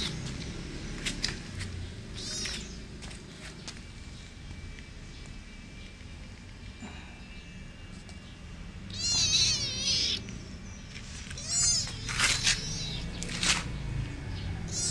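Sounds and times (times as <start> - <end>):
kitten meowing: 2.2 - 2.8, 8.9 - 10.3, 11.3 - 13.2, 14.7 - 14.9.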